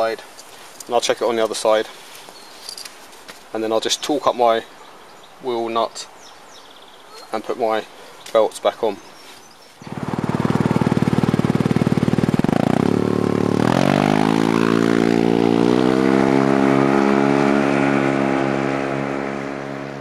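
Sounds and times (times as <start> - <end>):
scooter engine accelerating: 9.8 - 20.0.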